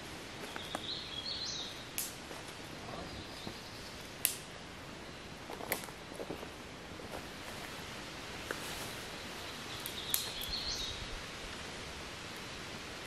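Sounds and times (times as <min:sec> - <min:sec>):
woodland ambience: 0:00.0 - 0:13.0
sharp light clicks: 0:02.0 - 0:02.2, 0:04.2 - 0:04.5, 0:09.8 - 0:10.6
soft rustles: 0:05.5 - 0:09.5.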